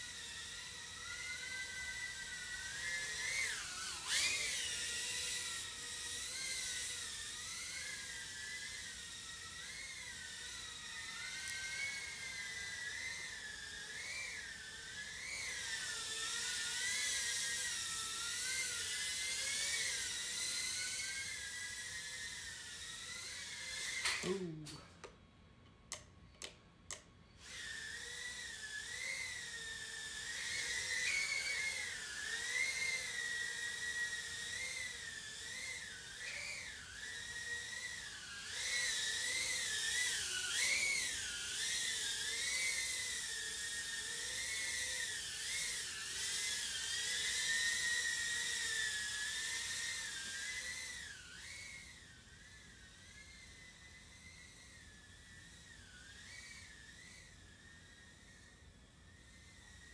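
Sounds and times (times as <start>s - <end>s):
drone motors whining: 0.0s - 25.1s, 25.9s - 59.9s
short clicks: 25.9s - 27.1s.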